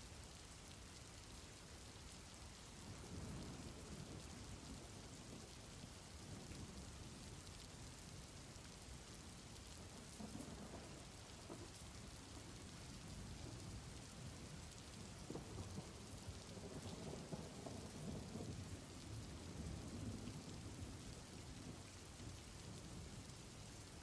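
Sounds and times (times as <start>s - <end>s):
soft steady rain: 0.0s - 24.0s
low thunder rumbling: 9.8s - 11.7s, 12.3s - 21.9s.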